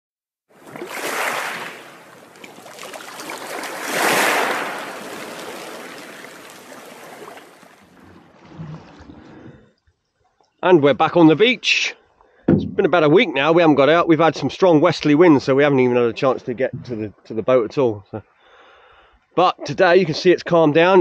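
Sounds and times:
sea waves washing onto beach: 0.6s - 8.0s.

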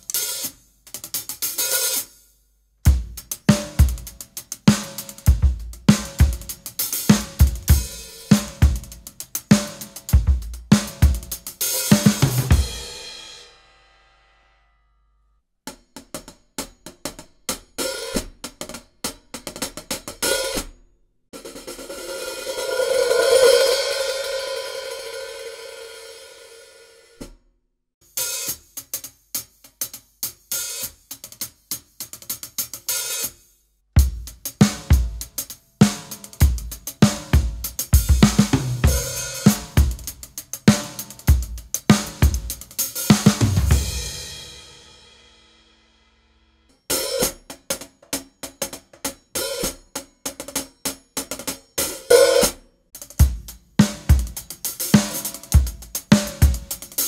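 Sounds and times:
drum kit beat: 0.0s - 2.2s, 2.8s - 13.6s, 21.4s - 26.8s, 28.0s - 33.4s, 34.0s - 45.7s, 46.8s - 57.0s
cymbal wash: 21.9s - 27.1s
cymbal ringing: 21.9s - 27.2s.

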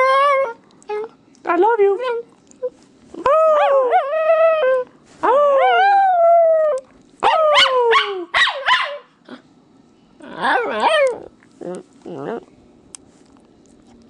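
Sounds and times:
small dog howling: 3.2s - 8.3s, 10.2s - 11.3s.

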